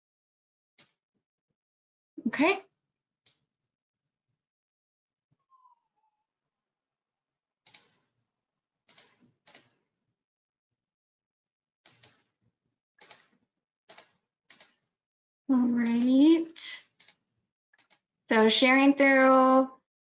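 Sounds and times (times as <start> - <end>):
computer keys clicking: 7.7 - 7.9, 8.9 - 9.7, 11.9 - 12.2, 13.0 - 13.3, 13.9 - 14.8, 15.8 - 16.2, 17.8 - 18.0.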